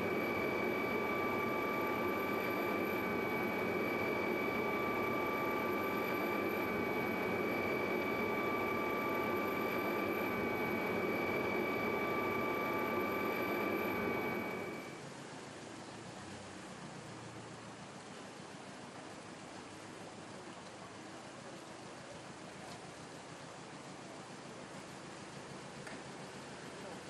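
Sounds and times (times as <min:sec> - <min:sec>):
helicopter turbine and rotor: 0:00.0 - 0:15.0.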